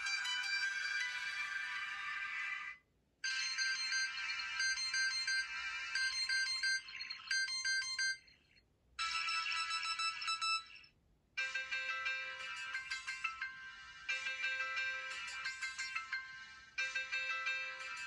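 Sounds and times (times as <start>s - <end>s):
phone startup chime: 0.0s - 2.1s, 11.4s - 18.0s
phone ringtone: 0.0s - 2.4s, 3.2s - 18.0s.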